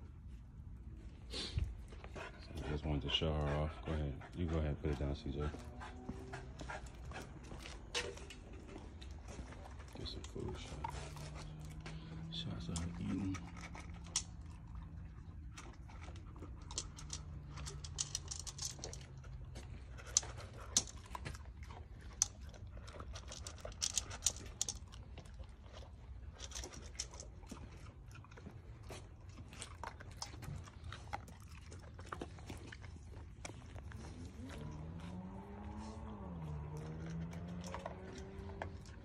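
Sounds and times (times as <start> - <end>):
puppy crunching dry kibble: 0.0 - 39.0.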